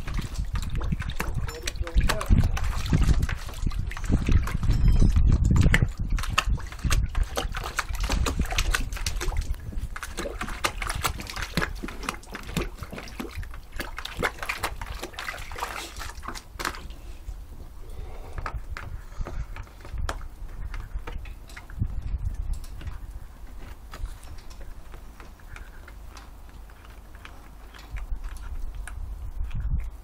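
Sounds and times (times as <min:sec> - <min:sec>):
dog splashing in bucket of water: 0:00.0 - 0:17.1.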